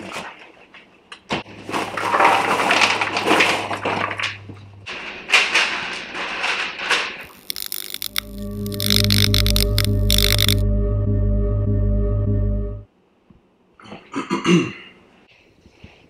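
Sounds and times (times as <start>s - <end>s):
popcorn rustling and rattling: 0.0s - 10.6s
ambient music with ringing tones: 8.1s - 12.9s.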